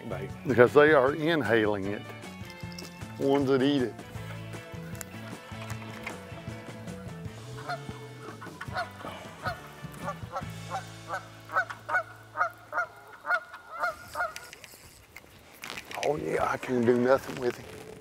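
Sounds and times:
goose honking: 0:04.2 - 0:14.6.

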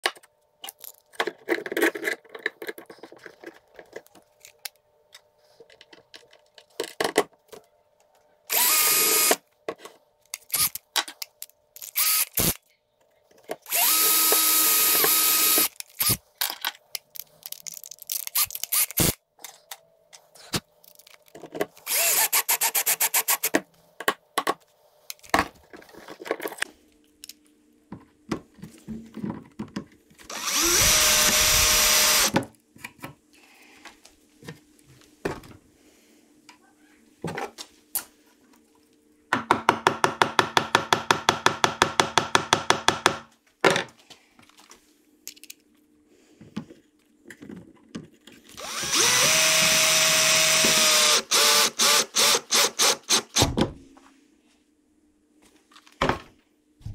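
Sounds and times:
cordless drill driving screws: 0:08.5 - 0:09.4, 0:11.8 - 0:12.5, 0:13.7 - 0:16.2, 0:21.8 - 0:23.5, 0:30.3 - 0:32.4, 0:48.6 - 0:53.4.

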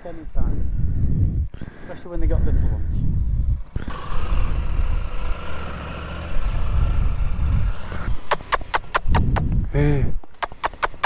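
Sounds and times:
motorcycle engine running: 0:03.2 - 0:09.6
quick sharp clicks: 0:08.0 - 0:09.6, 0:10.3 - 0:11.0.

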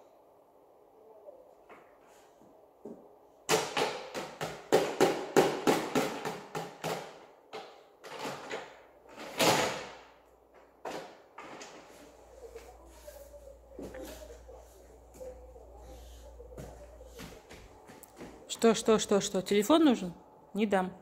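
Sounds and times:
plastic toys clattering: 0:05.7 - 0:10.0.

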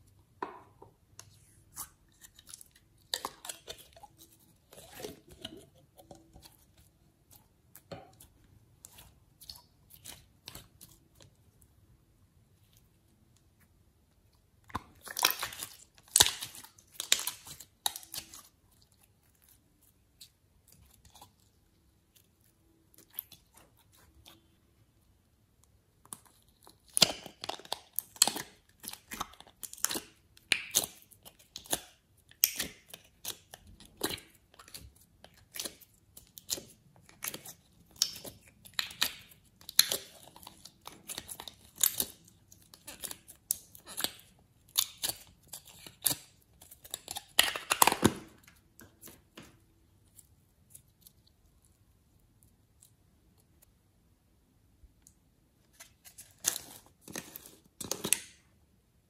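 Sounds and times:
slime crackling and popping: 0:14.7 - 0:18.6, 0:26.1 - 0:48.5.

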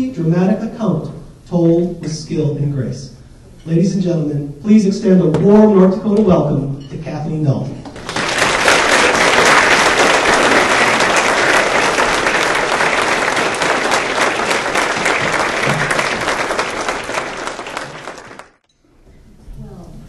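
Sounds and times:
audience applauding: 0:08.0 - 0:18.6.

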